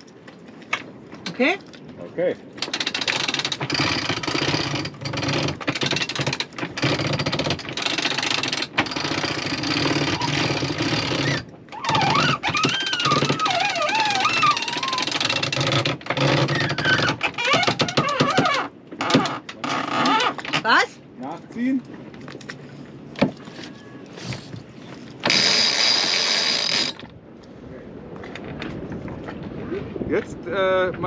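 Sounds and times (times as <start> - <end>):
wavering high squeal: 11.2 - 15.1
winch ratchet clicking: 25.2 - 27.0.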